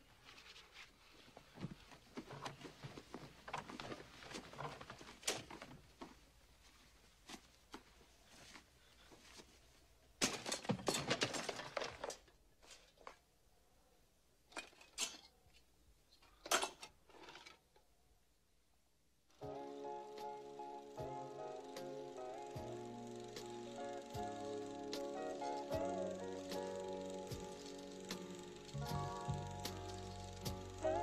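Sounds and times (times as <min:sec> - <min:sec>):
clothes rustling: 0:00.0 - 0:13.3.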